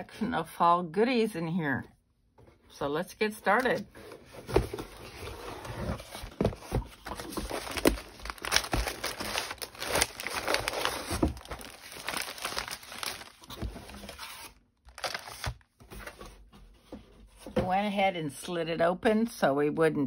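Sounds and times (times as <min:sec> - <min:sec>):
paper sheets rustling: 0:03.6 - 0:16.4
cardboard box being opened: 0:03.6 - 0:16.5.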